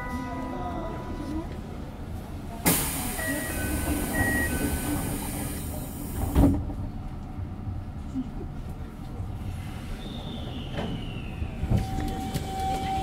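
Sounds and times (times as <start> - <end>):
two-note chime: 0.0 - 1.4
pneumatic door air hiss: 2.7 - 3.2.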